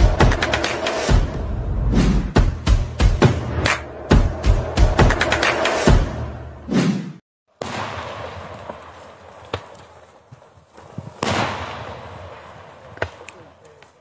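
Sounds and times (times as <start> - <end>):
intro music: 0.0 - 6.6
fireworks bangs echoing: 7.6 - 13.9.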